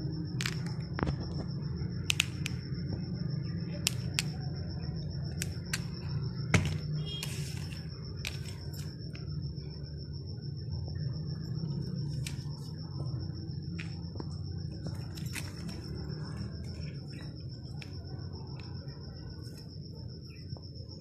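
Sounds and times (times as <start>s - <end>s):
faint high whine: 0.0s - 21.0s.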